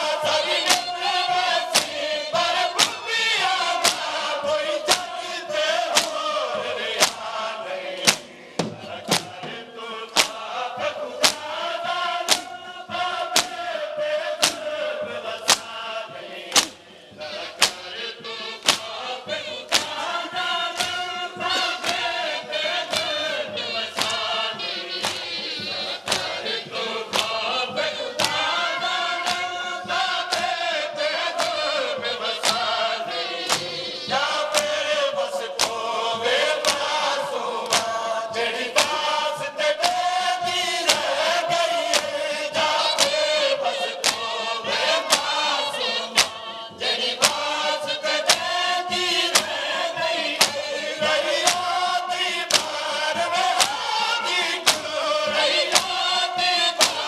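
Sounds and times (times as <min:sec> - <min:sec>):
crowd of men chanting: 0:00.0 - 0:57.0
chest-beating hand strikes: 0:00.4 - 0:02.1, 0:05.9 - 0:07.4, 0:08.0 - 0:10.5, 0:11.2 - 0:11.6, 0:12.2 - 0:12.5, 0:13.3 - 0:13.6, 0:14.4 - 0:14.7, 0:15.4 - 0:29.6, 0:32.4 - 0:34.9, 0:37.6 - 0:51.9.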